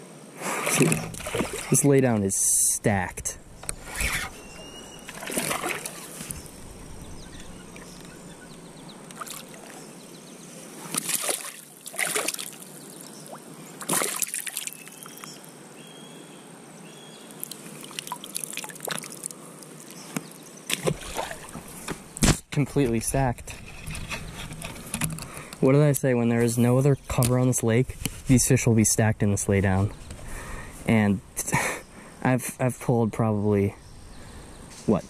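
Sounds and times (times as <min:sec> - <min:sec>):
hiss of moving water: 0:00.3 - 0:02.0
water sloshing and splashing: 0:00.6 - 0:01.9, 0:03.7 - 0:09.8, 0:10.9 - 0:15.2, 0:17.4 - 0:19.4, 0:20.7 - 0:21.9.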